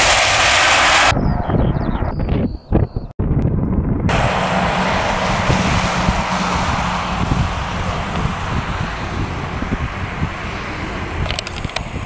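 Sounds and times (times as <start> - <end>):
jet engines hissing: 0.0 - 1.2, 4.1 - 12.0
wind buffeting microphone: 0.0 - 12.0.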